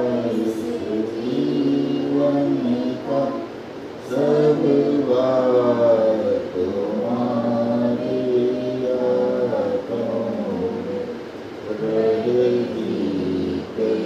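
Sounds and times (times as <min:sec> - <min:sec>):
group singing unaccompanied: 0:00.0 - 0:14.0.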